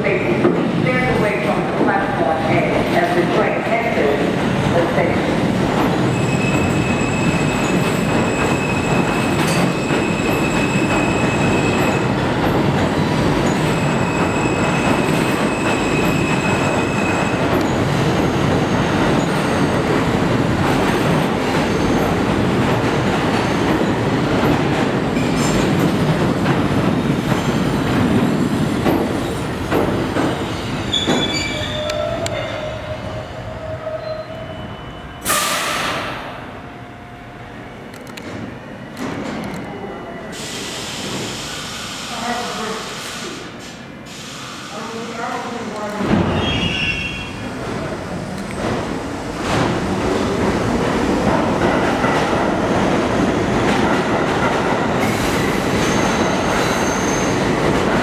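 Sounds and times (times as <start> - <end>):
train wheels rumbling on rail: 0.0 - 34.3, 40.3 - 58.0
high wheel squeal: 30.5 - 32.8, 46.4 - 47.4, 55.8 - 57.4.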